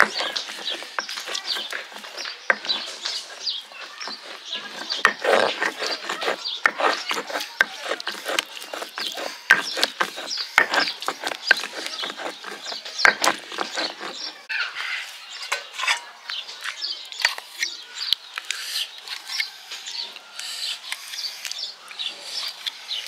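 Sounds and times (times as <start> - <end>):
stone roller grinding paste: 0.0 - 14.5.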